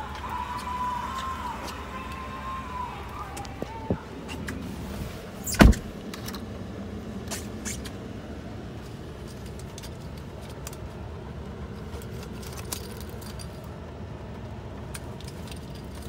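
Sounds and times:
low cabin noise: 0:00.0 - 0:16.0
truck door shutting: 0:03.6 - 0:06.4.

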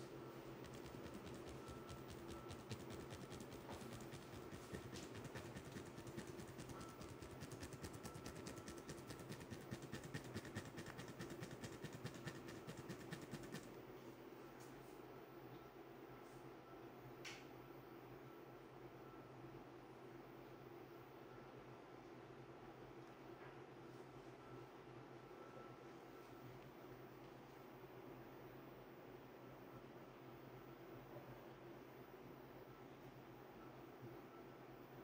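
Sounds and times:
low room hum: 0:00.0 - 0:35.0
fingertips rubbing skin: 0:00.6 - 0:13.7.

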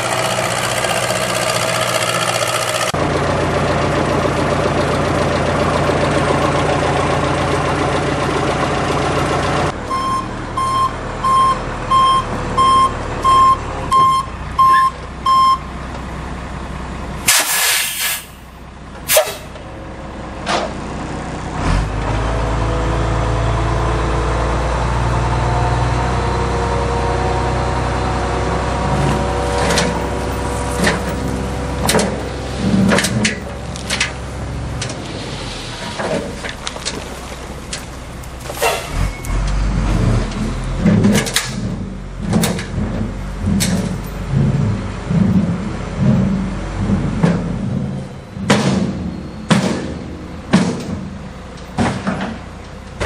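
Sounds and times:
diesel engine running: 0:00.0 - 0:53.0
backup alarm beeping: 0:09.9 - 0:15.7
air brakes hissing: 0:17.3 - 0:18.5, 0:19.1 - 0:19.6, 0:34.9 - 0:36.4, 0:38.5 - 0:39.2
dirt load sliding out clattering: 0:28.2 - 0:53.0.

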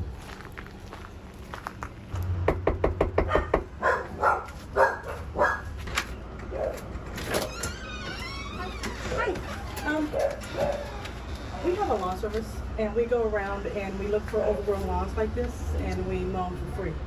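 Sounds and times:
knocking on door: 0:02.4 - 0:03.8.

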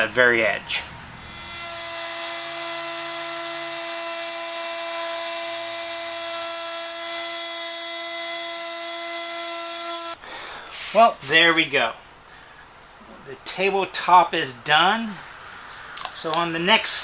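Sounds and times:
router high whine: 0:00.6 - 0:10.2.

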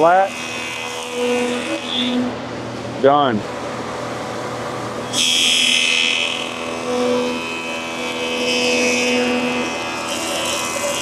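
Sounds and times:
jointer cutting board: 0:00.0 - 0:02.4, 0:05.0 - 0:11.0
jointer humming: 0:00.0 - 0:11.0.

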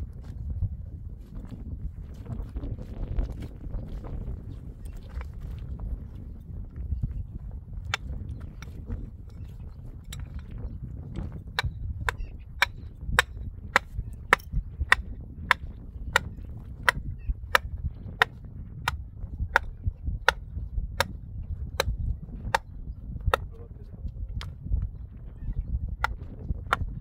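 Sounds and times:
tent stake being hammered: 0:11.6 - 0:21.2.

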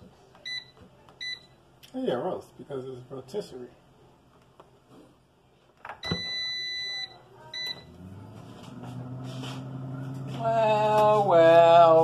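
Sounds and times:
fan humming: 0:05.7 - 0:12.0.

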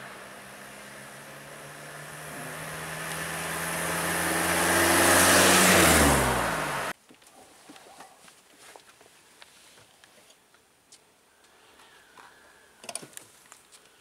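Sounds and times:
lorry engine driving past: 0:00.0 - 0:06.9.

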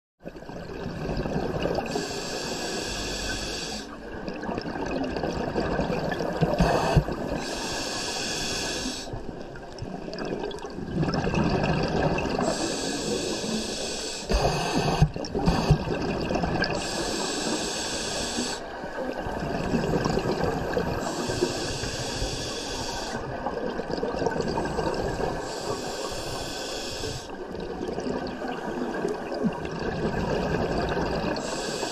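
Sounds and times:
gurgle of exhaled bubbles: 0:00.2 - 0:02.1, 0:04.0 - 0:07.5, 0:09.2 - 0:12.8, 0:14.3 - 0:17.4, 0:18.7 - 0:22.2, 0:23.1 - 0:25.8, 0:27.3 - 0:31.9
hissing regulator inhale: 0:01.8 - 0:04.0, 0:06.4 - 0:09.2, 0:12.4 - 0:16.0, 0:16.6 - 0:18.7, 0:20.8 - 0:23.4, 0:25.1 - 0:27.4, 0:31.4 - 0:31.9.

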